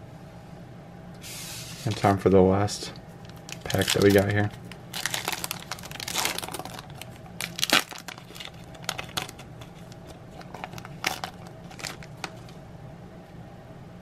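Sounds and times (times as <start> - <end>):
foil wrapper tearing and crinkling: 3.2 - 12.6.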